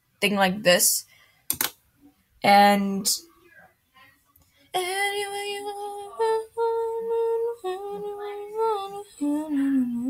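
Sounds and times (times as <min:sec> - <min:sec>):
woman singing unaccompanied: 0:04.7 - 0:10.0.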